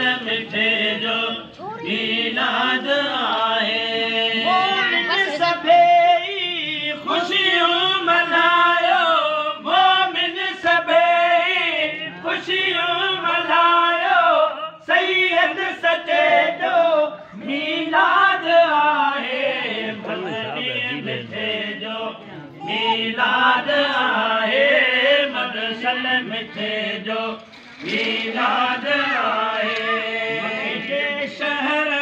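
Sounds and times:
men singing devotional song: 0:00.0 - 0:32.0.

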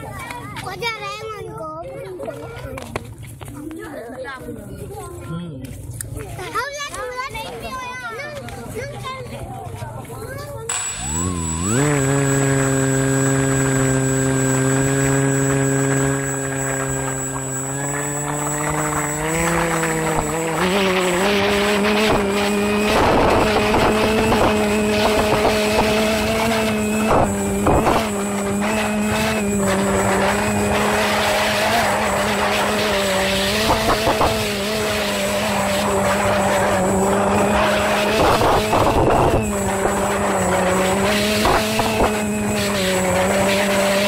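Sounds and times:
drone propellers whining: 0:10.7 - 0:44.0.

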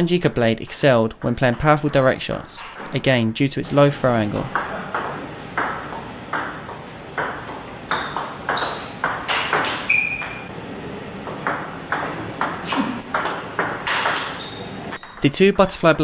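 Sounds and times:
high squeaks: 0:09.8 - 0:10.5, 0:12.6 - 0:15.2.

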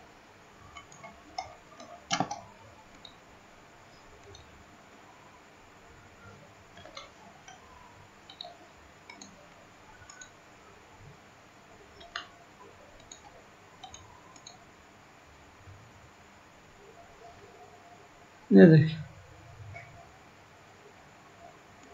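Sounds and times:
faint steady hiss: 0:00.0 - 0:21.9
computer mouse clicking: 0:00.7 - 0:03.2, 0:03.9 - 0:04.6, 0:06.7 - 0:10.4, 0:11.9 - 0:14.7, 0:21.4 - 0:21.9.

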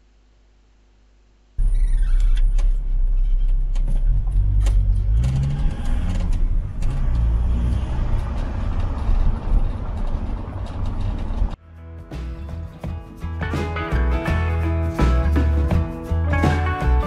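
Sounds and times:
road rumble: 0:01.6 - 0:11.6
car engine running: 0:02.6 - 0:11.6.

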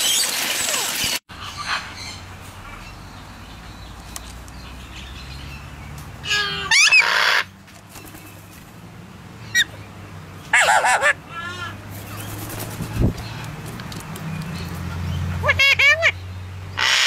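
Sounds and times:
parakeet harsh squawks: 0:06.2 - 0:07.5, 0:10.5 - 0:11.7, 0:15.4 - 0:16.2, 0:16.8 - 0:17.0.

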